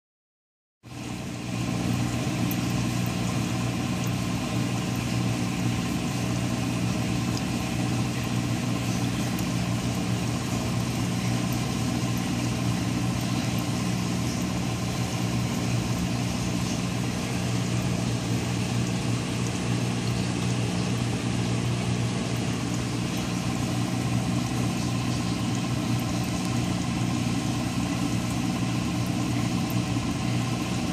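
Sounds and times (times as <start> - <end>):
aquarium pump humming: 0.8 - 30.9.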